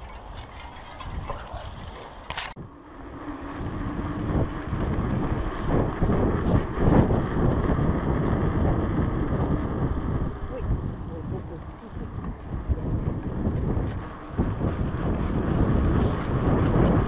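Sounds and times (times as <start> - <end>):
bike tyres rumbling on path: 0.0 - 17.0
wind buffeting microphone: 0.0 - 17.0.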